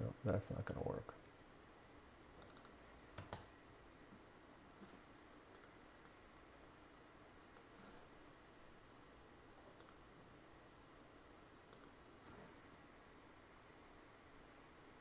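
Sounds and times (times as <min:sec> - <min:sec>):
computer mouse clicks: 0:02.4 - 0:03.5, 0:05.5 - 0:06.2, 0:07.5 - 0:07.8, 0:09.8 - 0:10.0, 0:11.7 - 0:12.4, 0:13.3 - 0:14.5.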